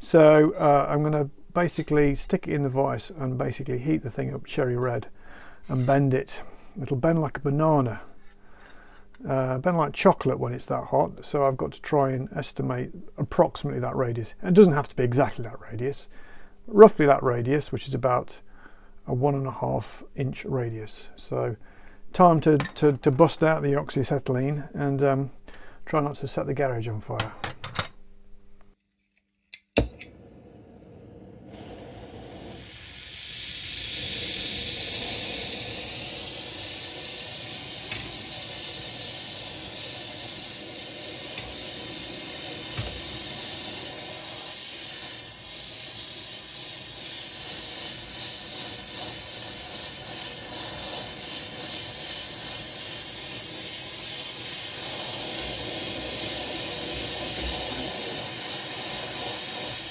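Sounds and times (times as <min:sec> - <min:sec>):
torch flame hissing: 0:30.1 - 0:59.9.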